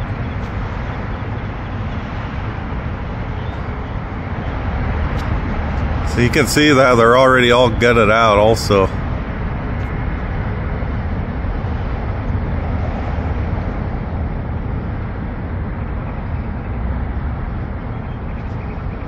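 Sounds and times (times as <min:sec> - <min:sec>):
city street traffic rumble: 0:00.0 - 0:19.0.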